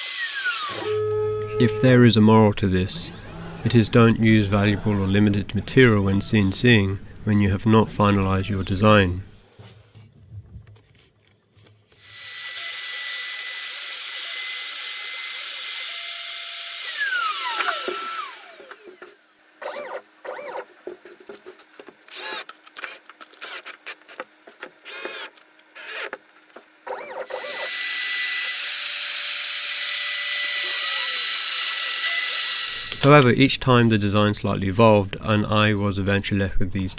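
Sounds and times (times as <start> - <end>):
router spindle whining: 0.0 - 2.0, 2.9 - 6.8, 12.0 - 20.7, 24.9 - 26.2, 26.9 - 33.3.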